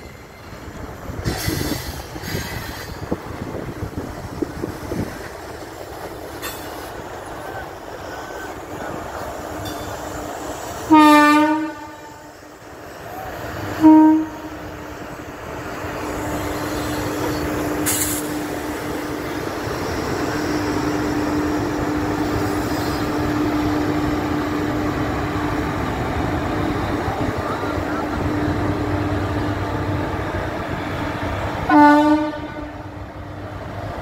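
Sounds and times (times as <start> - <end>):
train rumbling along tracks: 0.0 - 34.0
train horn: 10.9 - 12.4, 13.7 - 14.6, 31.7 - 32.9.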